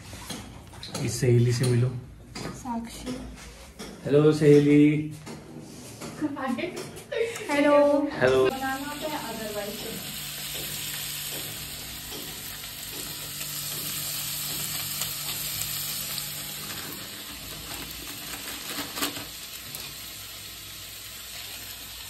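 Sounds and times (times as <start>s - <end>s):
food sizzling in a pan: 8.5s - 22.0s.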